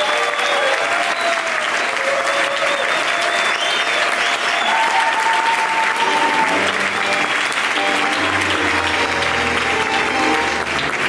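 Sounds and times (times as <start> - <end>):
audience applauding: 0.0 - 11.0
tango music: 5.7 - 11.0.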